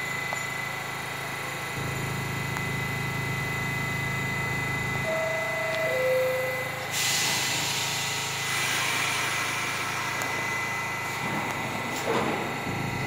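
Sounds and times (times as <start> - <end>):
steady high whine: 0.0 - 13.0
train low hum: 0.0 - 13.0
door chime: 5.1 - 6.8
air hissing: 6.8 - 12.7.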